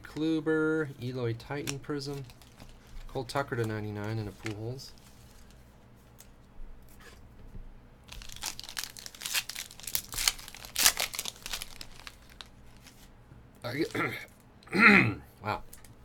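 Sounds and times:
foil pack tearing and crinkling: 1.6s - 4.8s, 8.1s - 13.0s.

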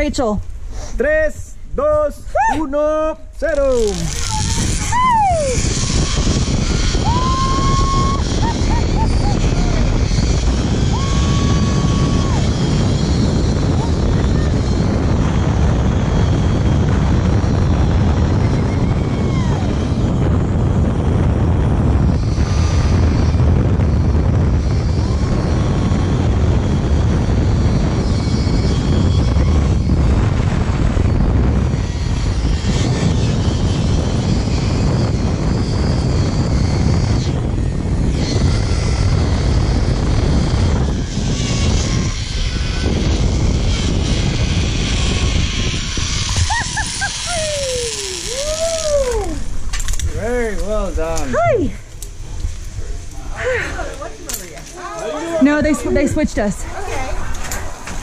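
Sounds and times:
wind buffeting microphone: 1.6s - 58.0s
pulleys running along steel cable: 3.7s - 20.7s, 22.0s - 50.7s.

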